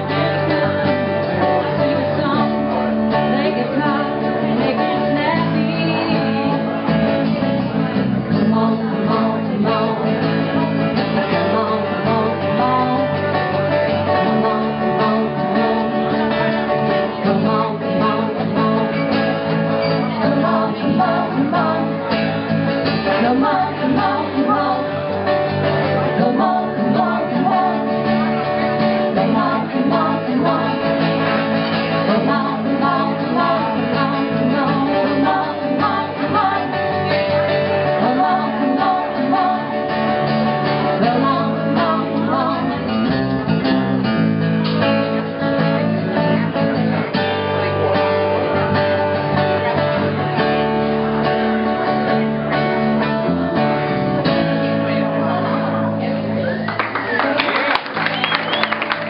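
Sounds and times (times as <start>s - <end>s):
person singing: 0.0s - 44.2s
strummed acoustic guitar: 0.0s - 56.6s
electric guitar: 0.0s - 59.0s.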